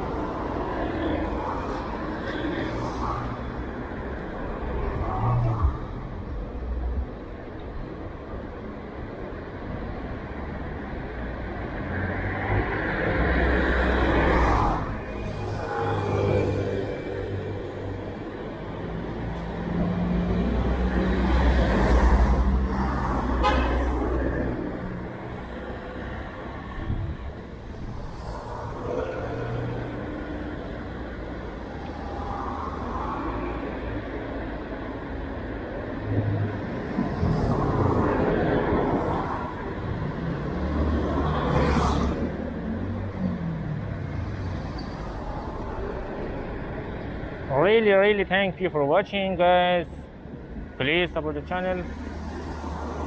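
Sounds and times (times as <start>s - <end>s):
vehicles passing close by: 0.0s - 53.0s.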